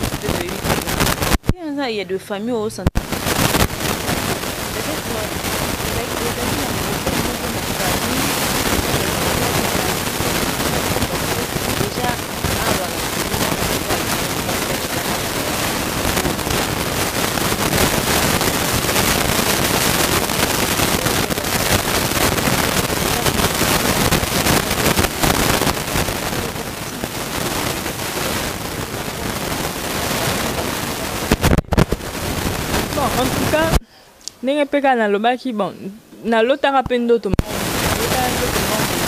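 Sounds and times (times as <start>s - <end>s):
woman talking: 0.0s - 3.0s, 4.7s - 16.0s, 23.0s - 23.7s, 32.8s - 33.8s, 34.4s - 39.0s
loud steady rushing noise: 2.9s - 33.8s, 37.4s - 39.0s.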